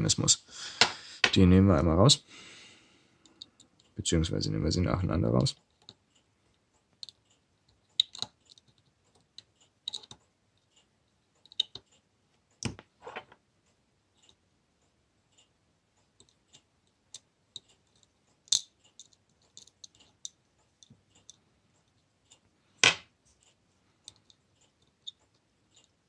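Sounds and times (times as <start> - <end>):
small metallic clicks and taps: 3.2 - 4.0, 5.3 - 13.5, 14.2 - 26.0.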